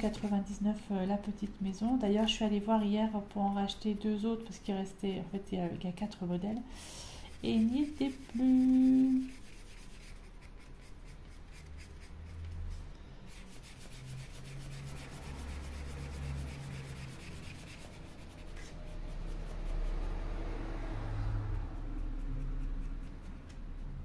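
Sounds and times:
marker scratching on wood: 7.2 - 20.3, 21.8 - 24.0.

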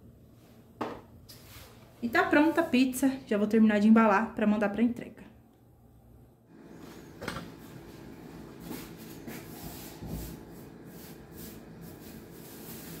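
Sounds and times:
steady low hum: 5.7 - 13.0
hands brushing flour on stone: 8.6 - 13.0.

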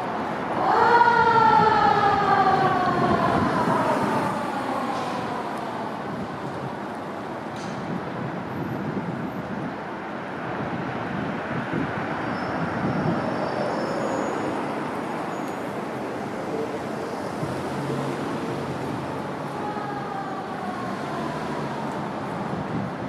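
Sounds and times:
fire engine rumbling: 0.0 - 9.6
street traffic: 0.0 - 23.0.

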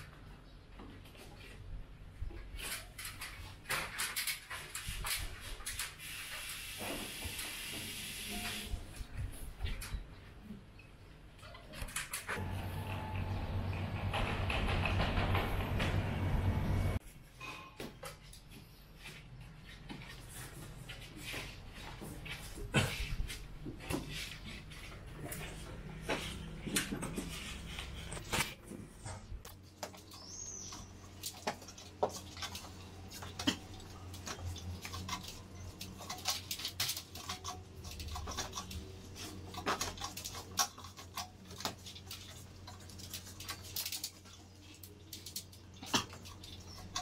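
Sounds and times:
hands clicking and rustling cables: 2.5 - 6.0, 29.4 - 47.0.

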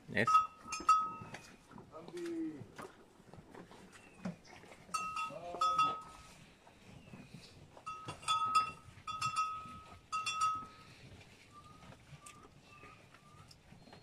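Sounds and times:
metal bell clanking: 0.2 - 1.4, 5.0 - 6.3, 7.9 - 10.8.

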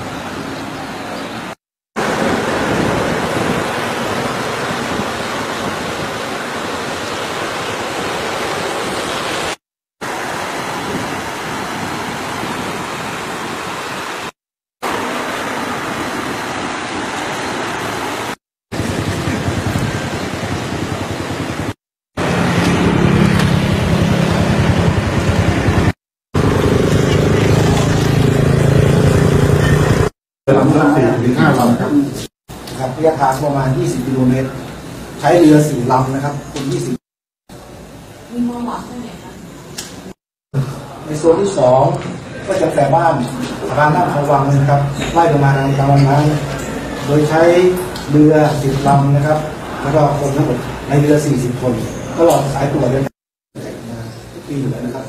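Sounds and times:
fast-flowing river rushing: 0.0 - 21.6
wind on microphone: 2.0 - 6.6, 18.7 - 25.9.

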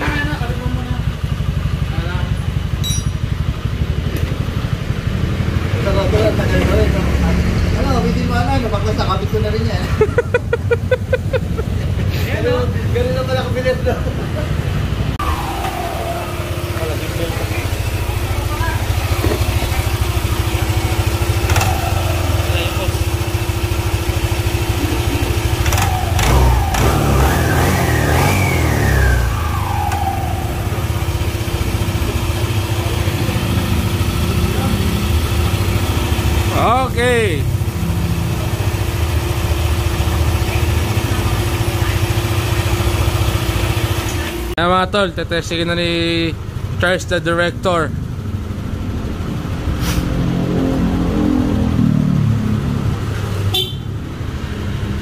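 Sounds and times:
scooter engine revving and idling: 0.0 - 44.6, 45.4 - 55.0
brief hiss: 49.8 - 50.1.

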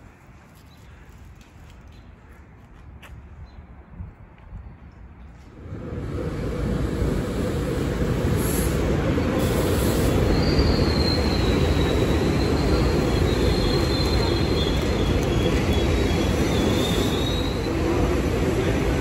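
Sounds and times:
electric train rumbling: 5.4 - 19.0.

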